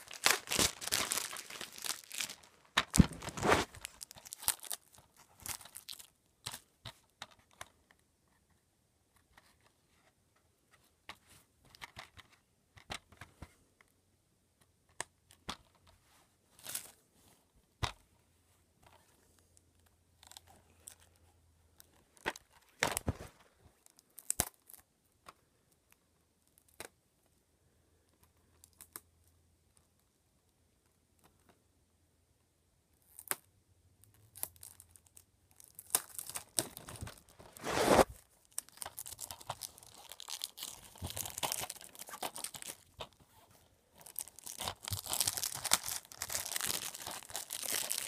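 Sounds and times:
packaging tearing: 0.0s - 6.0s, 35.7s - 43.0s, 44.0s - 48.0s
packaging crinkling: 0.0s - 6.1s, 35.6s - 43.2s, 44.0s - 48.0s.

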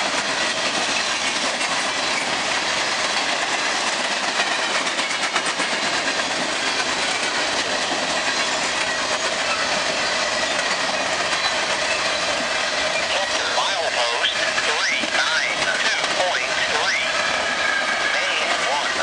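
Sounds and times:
wheels clicking over track: 0.0s - 13.1s
train wheels rushing on rails: 0.0s - 19.0s.

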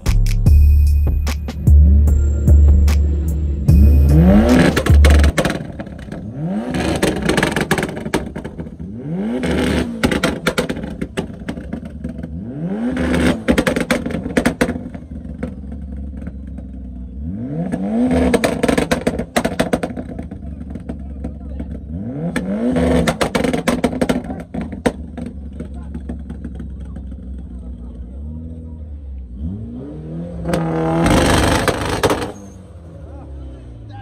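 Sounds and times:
music with heavy bass beat: 0.0s - 5.8s
engine revving: 0.0s - 34.0s.

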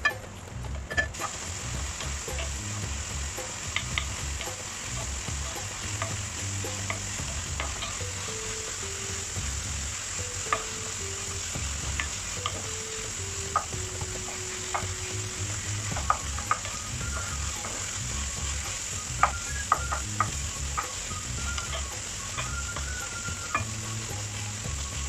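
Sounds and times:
wooden spatula scraping a pan: 0.8s - 25.0s
meat sizzling in a frying pan: 0.9s - 25.0s.

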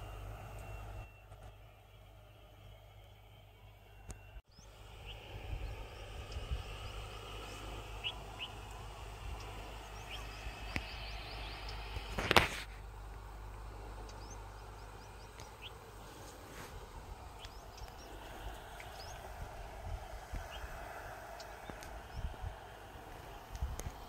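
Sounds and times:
low wind rumble: 0.0s - 24.0s
bird chirps: 3.8s - 12.1s, 14.0s - 16.2s, 17.3s - 19.3s.

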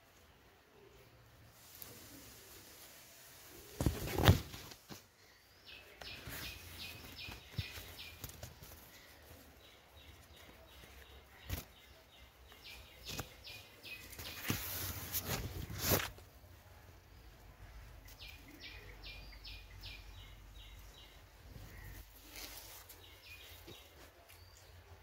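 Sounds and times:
bird chirping: 5.2s - 16.0s, 16.6s - 25.0s.

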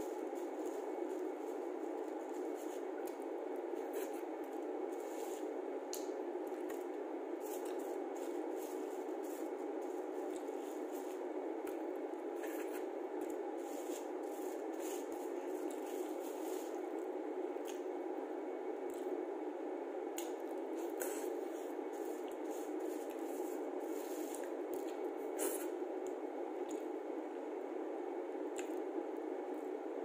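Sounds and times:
steady background hum: 0.0s - 30.0s.

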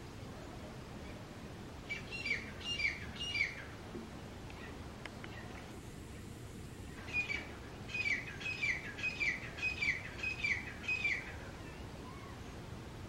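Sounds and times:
bird calling: 1.9s - 3.8s, 6.9s - 12.6s.

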